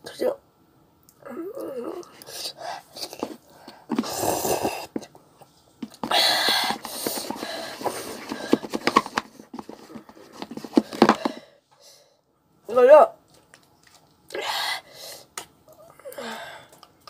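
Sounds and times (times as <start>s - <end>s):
breathing: 3.5s - 4.0s, 11.0s - 12.2s, 14.4s - 15.3s, 16.2s - 16.9s.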